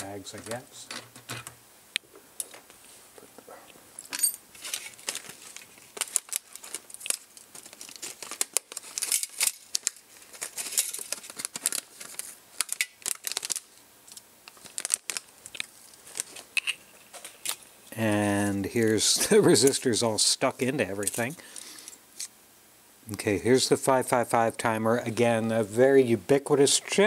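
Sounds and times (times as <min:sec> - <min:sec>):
plastic bag crinkling and tearing: 0:04.5 - 0:17.7.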